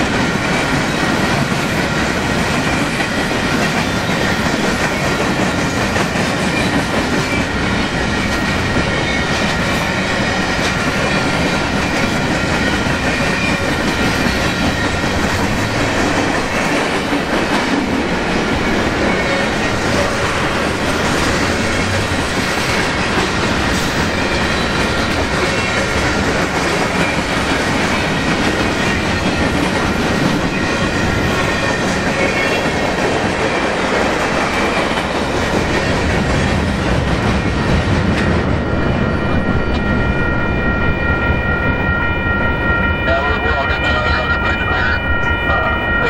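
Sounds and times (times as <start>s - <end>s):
freight train rumbling and clattering: 0.0s - 46.0s
high ringing tone: 38.2s - 46.0s.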